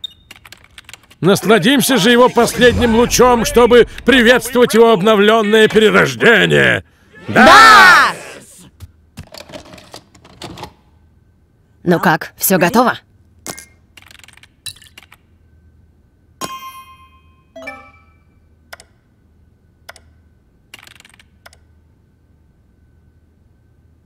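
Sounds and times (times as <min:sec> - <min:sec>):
faint steady hum: 0:10.8 - 0:14.0, 0:15.2 - 0:24.0.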